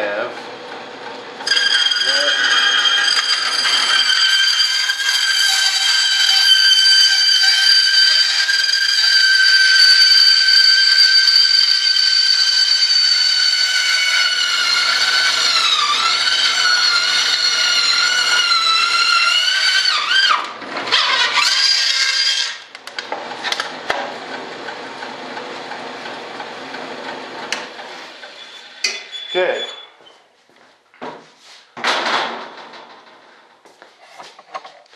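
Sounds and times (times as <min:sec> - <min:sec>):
bandsaw whistling while cutting: 0:01.4 - 0:22.8, 0:27.5 - 0:30.0.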